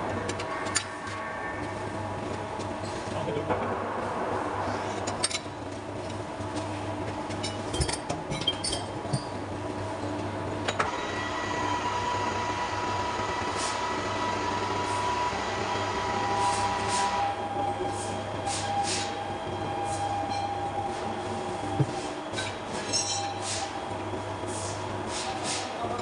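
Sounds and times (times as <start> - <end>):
steady high whine: 0.0 - 7.1
machinery humming: 0.0 - 26.0.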